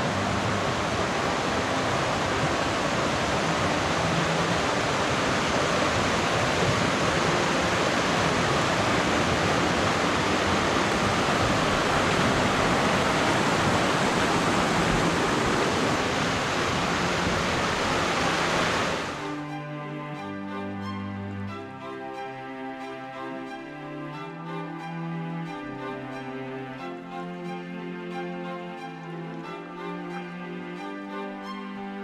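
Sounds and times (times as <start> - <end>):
stream rushing over rocks: 0.0 - 20.9.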